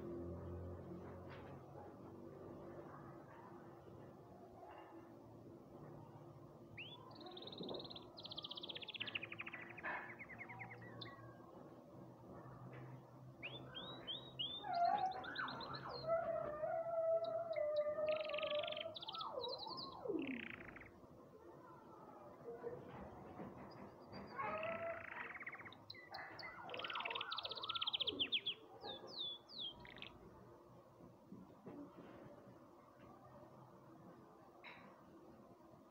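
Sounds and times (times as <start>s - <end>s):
canary singing: 6.8s - 11.4s, 13.4s - 21.0s, 24.2s - 30.3s.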